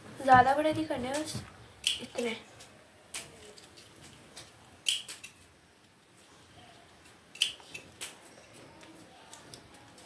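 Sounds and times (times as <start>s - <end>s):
scissors snipping paper: 7.3s - 10.0s.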